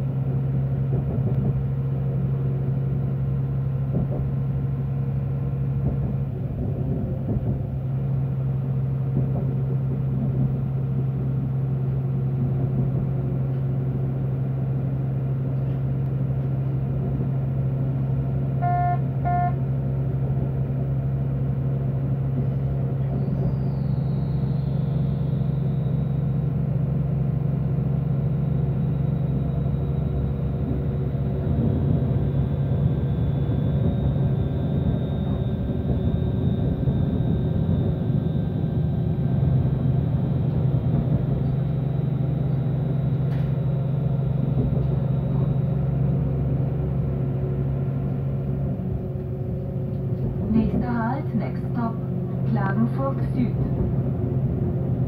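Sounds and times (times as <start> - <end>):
railcar engine drone: 0.0 - 55.0
wheels rumbling on track: 0.0 - 55.0
short beeps: 18.6 - 19.6.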